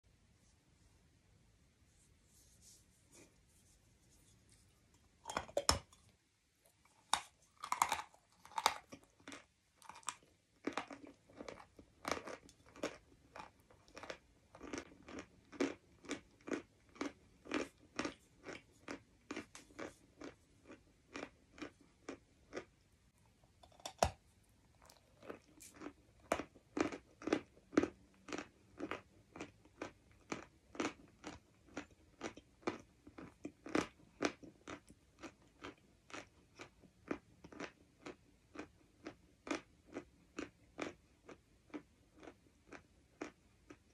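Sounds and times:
chewing chalk with crisp crunches: 6.7 - 22.9, 23.6 - 43.9.

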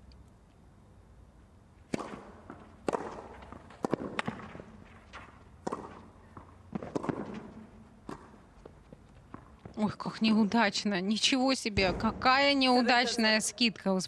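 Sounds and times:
racket striking tennis ball: 1.9 - 8.5
tennis ball bouncing: 1.9 - 9.8.

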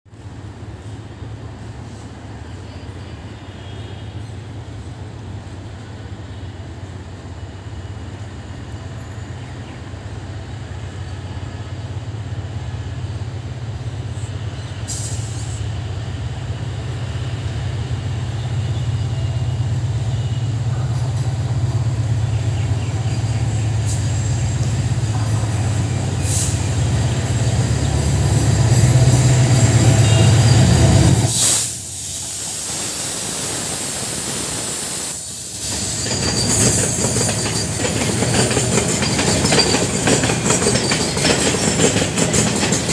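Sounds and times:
train wagons rolling on rails: 6.7 - 32.4, 33.6 - 42.9
locomotive engine drone: 15.5 - 32.0.

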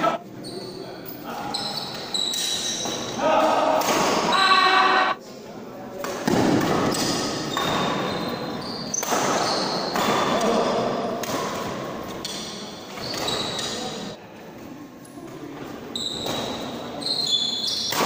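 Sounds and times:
shoes squeaking on court: 0.0 - 3.2, 7.5 - 10.2, 12.2 - 14.1, 15.9 - 18.0.

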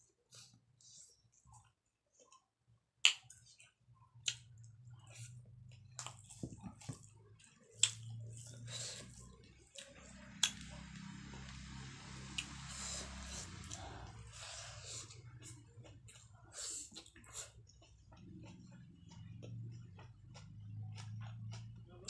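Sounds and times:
fingers squishing food: 1.5 - 11.0
low hum: 8.0 - 15.8.

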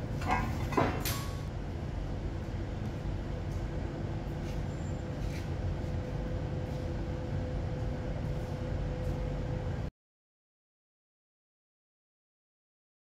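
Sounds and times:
faint steady hum: 0.0 - 9.9
low rumble of machinery: 0.0 - 9.9.

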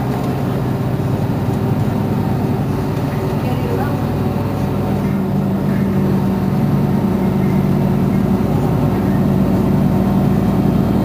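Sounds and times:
bus engine idling: 0.0 - 11.0.

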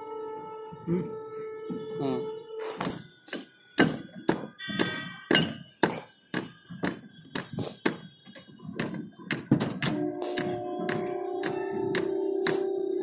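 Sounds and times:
rapid knocks and clanks: 3.8 - 12.6.

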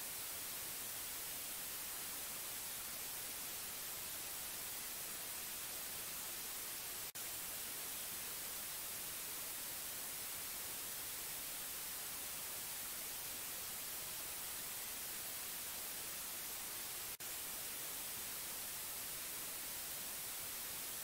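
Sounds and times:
recording hiss: 0.0 - 21.0.

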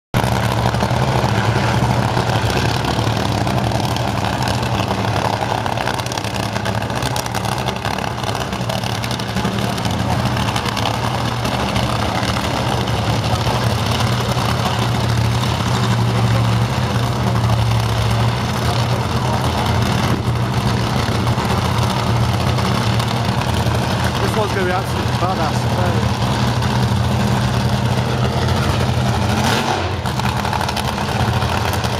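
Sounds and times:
racing car engine idling: 0.2 - 31.9.

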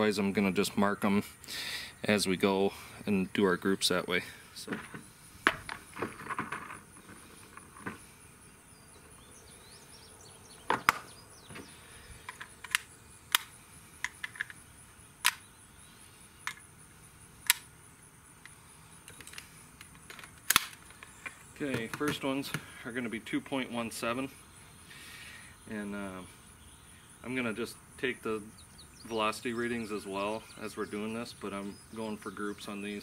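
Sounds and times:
cartridges clicking into magazine: 12.3 - 14.6, 15.2 - 15.5, 17.4 - 17.7, 19.1 - 21.4.

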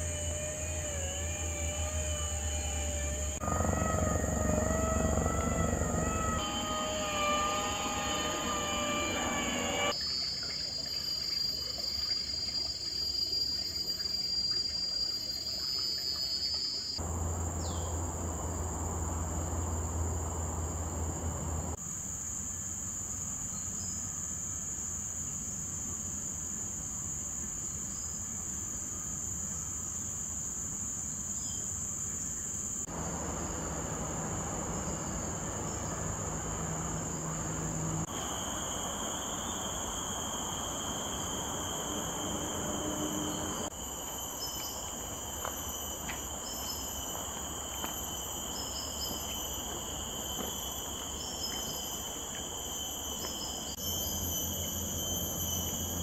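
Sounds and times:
high-pitched insect drone: 0.0 - 21.8, 32.8 - 56.0
lower insect tone: 0.0 - 56.0
background hiss: 17.0 - 56.0.

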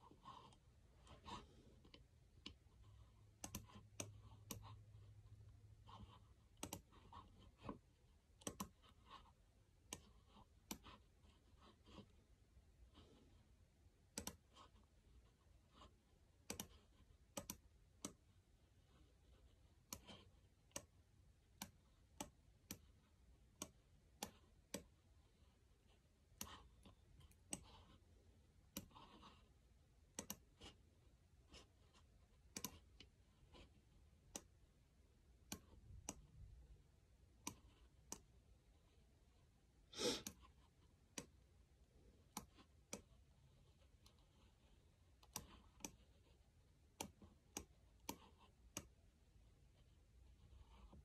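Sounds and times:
computer mouse clicks: 3.3 - 4.8, 5.9 - 9.2, 9.8 - 11.0, 14.1 - 14.8, 16.4 - 18.3, 19.8 - 25.0, 26.3 - 28.0, 28.6 - 29.4, 30.1 - 30.8, 31.5 - 34.6, 35.4 - 36.4, 37.4 - 38.3, 40.2 - 41.4, 42.2 - 43.2, 45.1 - 46.3, 46.9 - 49.0.

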